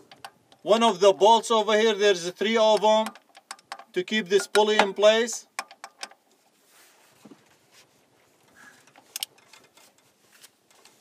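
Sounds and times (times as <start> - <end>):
metal bolt clicks and scrapes: 0.0 - 0.8, 2.3 - 6.6, 8.3 - 11.0.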